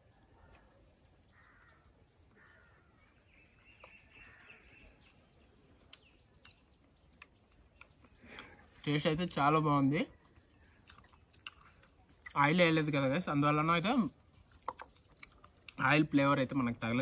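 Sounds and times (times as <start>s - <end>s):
faint bird calls: 0.0s - 8.7s.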